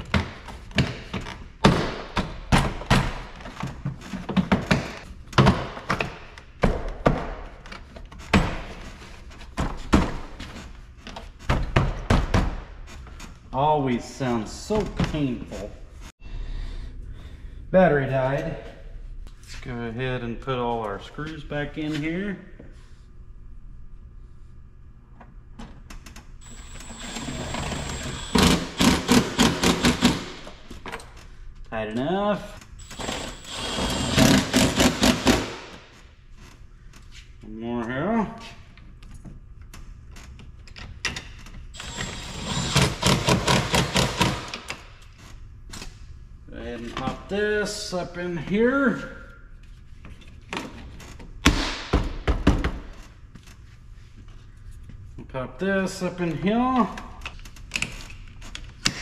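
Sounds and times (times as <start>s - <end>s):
cordless driver motor whine: 26.4s - 28.6s.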